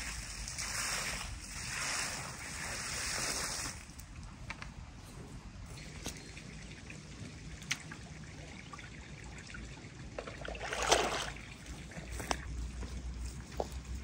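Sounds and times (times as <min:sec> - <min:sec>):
water rushing into bucket: 0:06.4 - 0:12.1.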